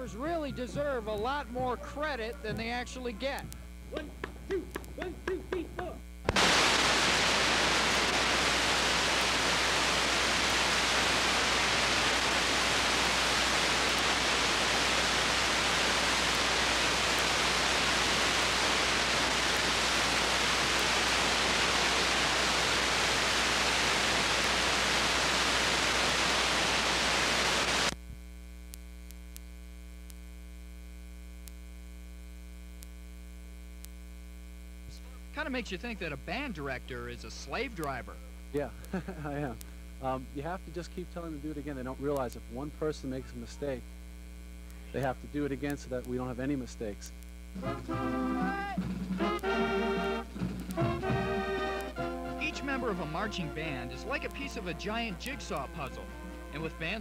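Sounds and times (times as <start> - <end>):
electrical mains hum: 0.0 - 57.0
videotape static hiss: 0.0 - 57.0.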